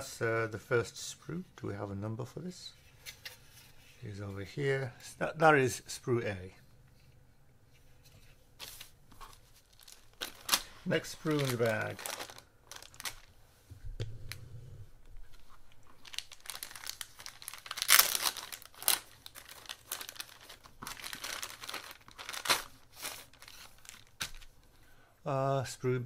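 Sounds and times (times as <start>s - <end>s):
plastic bag crinkling: 9.2s - 13.4s, 15.1s - 24.6s.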